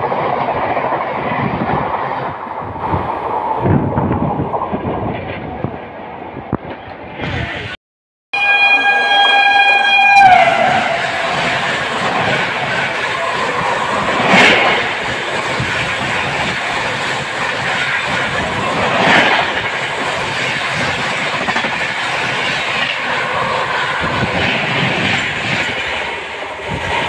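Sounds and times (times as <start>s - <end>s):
loud train clanks: 8.4s - 27.0s
train wheels clattering over rail joints: 11.2s - 26.8s.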